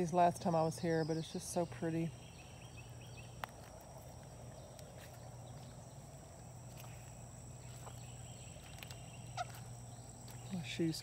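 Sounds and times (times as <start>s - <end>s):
faint insect whine: 0.0s - 11.0s
footsteps on pebbles: 3.2s - 10.8s.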